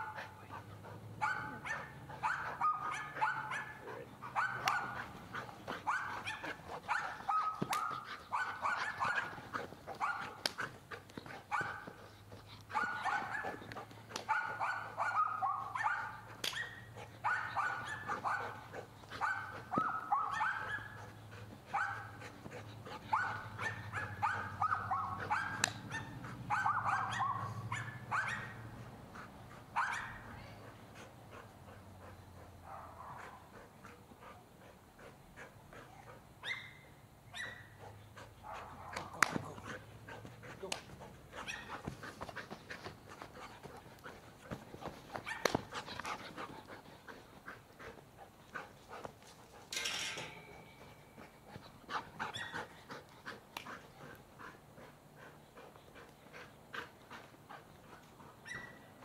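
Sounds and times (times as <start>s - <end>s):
dog barking: 1.2s - 5.1s, 5.9s - 9.4s, 10.0s - 10.4s, 12.7s - 13.6s, 14.3s - 18.6s, 19.2s - 21.0s, 21.7s - 22.2s, 23.1s - 28.6s, 29.8s - 30.2s, 32.7s - 33.4s, 36.4s - 37.7s, 38.4s - 39.2s, 41.4s - 41.8s.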